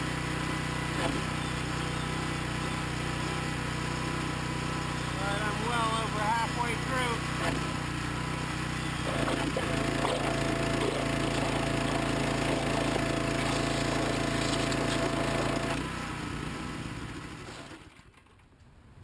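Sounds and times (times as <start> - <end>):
small engine drone: 0.0 - 18.4
pressure washer nozzle hissing: 13.3 - 15.7.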